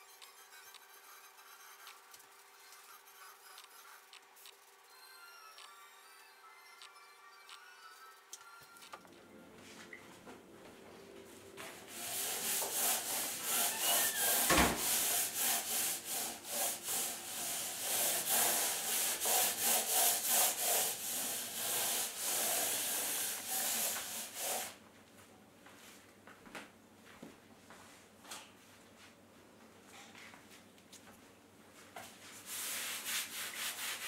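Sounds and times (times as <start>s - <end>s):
sanding block rasping: 11.9s - 24.7s, 32.5s - 34.0s.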